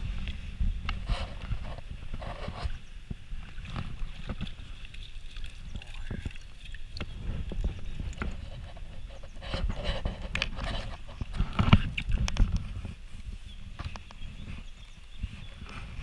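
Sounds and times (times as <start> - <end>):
water sloshing: 1.4 - 9.4.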